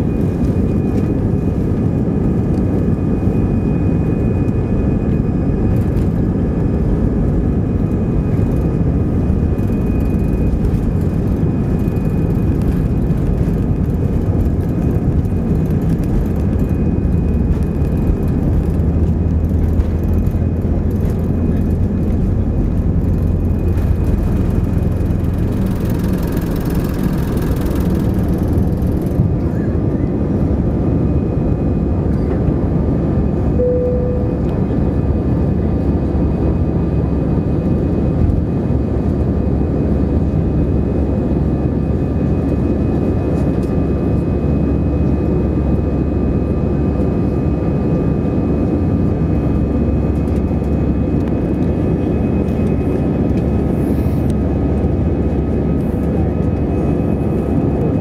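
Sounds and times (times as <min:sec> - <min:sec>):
jet engines roaring: 0:00.0 - 0:58.0
short cabin tone: 0:33.5 - 0:34.9
takeoff roll rumble and hiss: 0:49.8 - 0:57.9.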